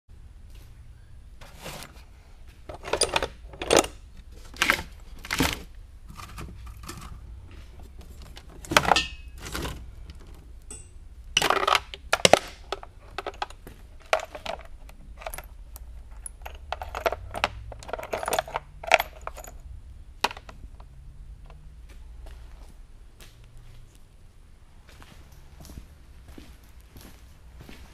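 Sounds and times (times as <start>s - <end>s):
metal chain clinking and rattling: 2.7s - 4.1s, 8.1s - 20.9s
chain links clicking: 10.1s - 20.9s.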